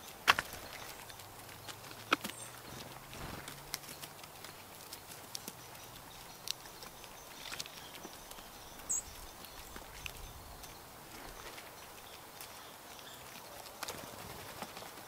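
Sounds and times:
birds pecking on wood: 0:00.0 - 0:15.0
high bird chirp: 0:05.6 - 0:11.5.

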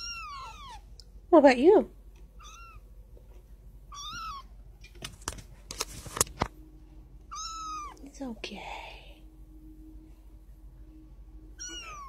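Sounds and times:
kitten mewing: 0:00.0 - 0:00.8, 0:07.3 - 0:08.0, 0:11.6 - 0:12.0
sharp clicks and scuffs: 0:04.8 - 0:06.5.

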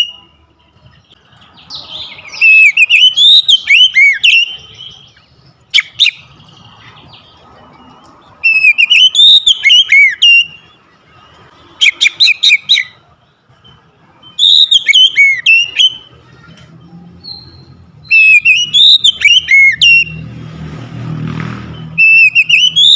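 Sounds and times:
bird singing whistled phrases: 0:01.7 - 0:06.3, 0:08.4 - 0:10.8, 0:11.8 - 0:13.0, 0:13.6 - 0:16.2, 0:17.2 - 0:20.2, 0:21.8 - 0:22.9.

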